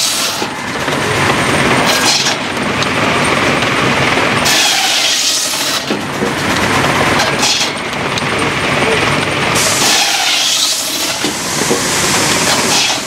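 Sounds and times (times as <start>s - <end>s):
machinery low rumble: 0.4s - 5.0s, 5.8s - 9.8s
hissing bursts: 9.5s - 13.0s.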